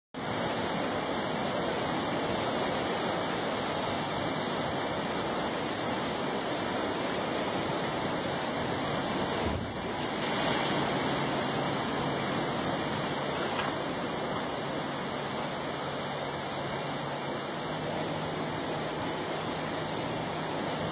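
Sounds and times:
wind on microphone: 0:00.2 - 0:16.1
surf washing against rocks: 0:00.2 - 0:20.9.

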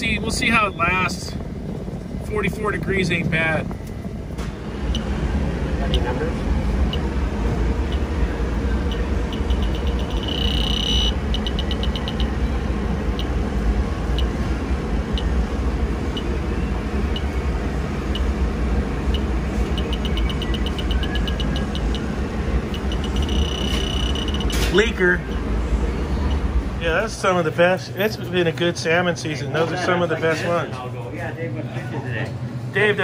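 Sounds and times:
steady low hum: 0:00.0 - 0:33.0
leak detector ticking: 0:04.8 - 0:05.2, 0:05.8 - 0:06.2, 0:06.8 - 0:14.4, 0:15.0 - 0:15.5, 0:16.1 - 0:16.4, 0:17.1 - 0:18.4, 0:19.0 - 0:25.5
high beep: 0:08.9 - 0:12.4, 0:19.1 - 0:22.1, 0:22.7 - 0:24.8.

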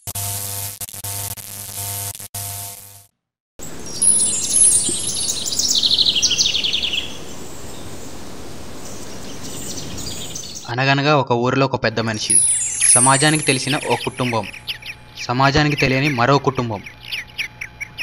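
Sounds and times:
small birds chirping: 0:03.6 - 0:10.7, 0:12.1 - 0:18.0
outdoor background hiss: 0:03.6 - 0:10.8, 0:12.0 - 0:17.2.

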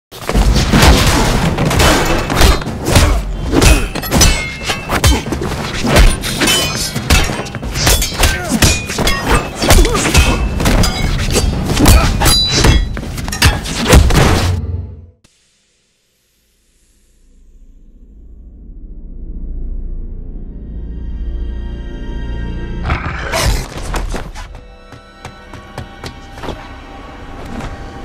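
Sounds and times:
punch and strike impacts: 0:11.6 - 0:14.6
background music: 0:19.4 - 0:28.0.

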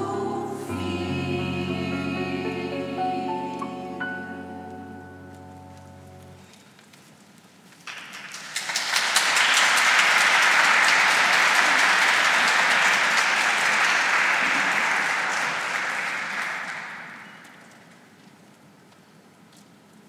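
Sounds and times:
audience applause: 0:07.8 - 0:17.9.

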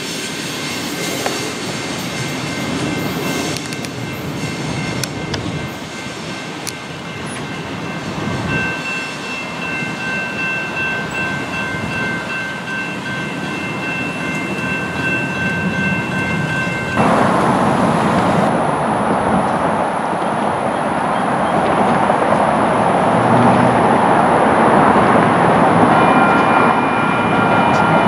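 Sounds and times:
crossing warning bell ringing: 0:00.8 - 0:18.5, 0:25.7 - 0:28.0
steady rushing noise: 0:13.6 - 0:28.0.

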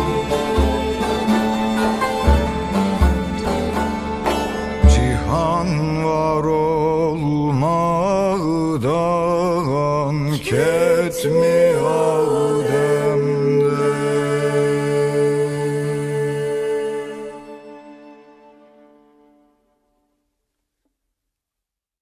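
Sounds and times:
person singing with vibrato: 0:00.0 - 0:02.0, 0:04.8 - 0:18.3
steady drone: 0:00.0 - 0:06.2, 0:10.4 - 0:18.5.

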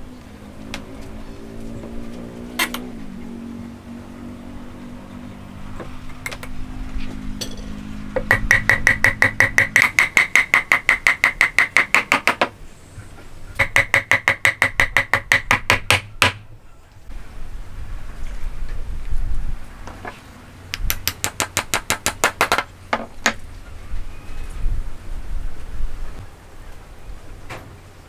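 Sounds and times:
hammer tapping on wooden beam: 0:08.2 - 0:12.5, 0:13.6 - 0:16.4, 0:20.8 - 0:23.4.

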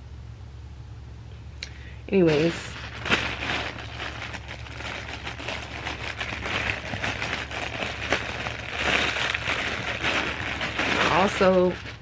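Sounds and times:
steady low hum: 0:00.0 - 0:12.0
faint crinkles: 0:01.7 - 0:12.0
clothing rustling: 0:02.3 - 0:12.0.

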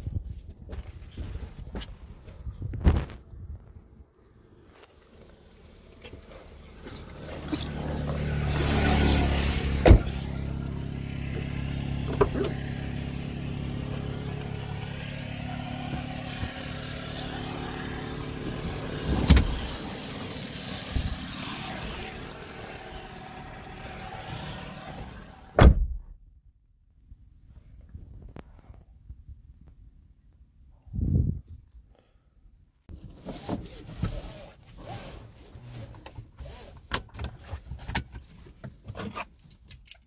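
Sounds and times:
car engine idling: 0:04.9 - 0:25.6.

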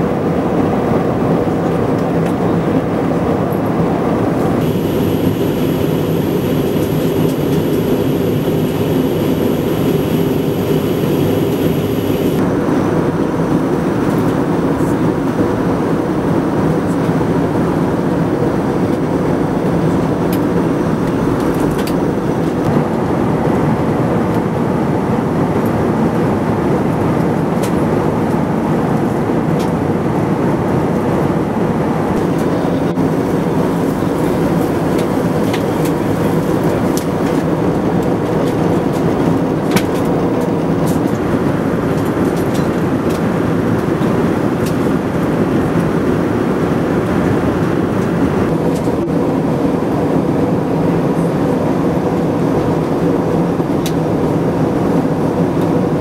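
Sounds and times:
jet engines droning in cabin: 0:00.0 - 0:56.0
rushing air: 0:02.7 - 0:13.0
faint high whine: 0:04.6 - 0:12.4.

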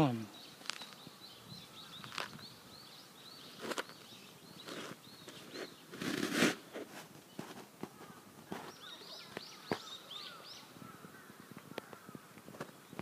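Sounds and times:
small bird chirping: 0:00.0 - 0:06.0, 0:07.2 - 0:13.0
footsteps on gravel: 0:03.5 - 0:10.0.

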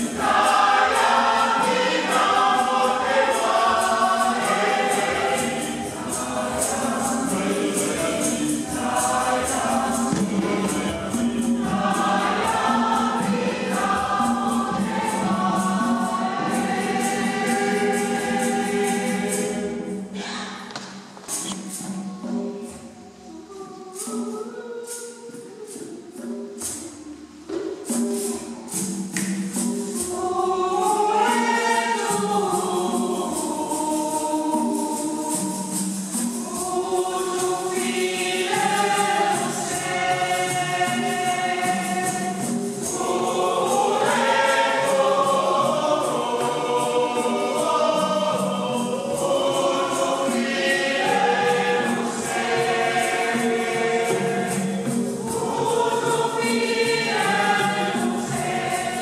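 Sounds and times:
choir singing gospel: 0:00.0 - 0:59.0
hand-shaken percussion rattle: 0:00.0 - 0:59.0.

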